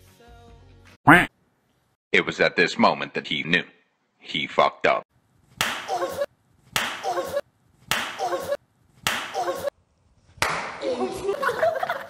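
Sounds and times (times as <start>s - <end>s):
slap-like hit: 5.6s - 6.0s, 6.8s - 7.1s, 7.9s - 8.3s, 9.0s - 9.4s, 10.4s - 10.8s.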